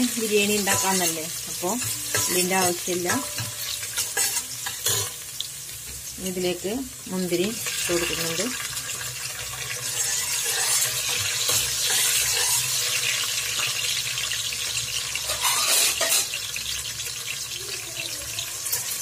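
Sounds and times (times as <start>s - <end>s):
food sizzling in hot oil: 0.0s - 19.0s
spoon scraping a pot: 0.5s - 5.2s, 9.4s - 13.7s, 15.2s - 16.4s.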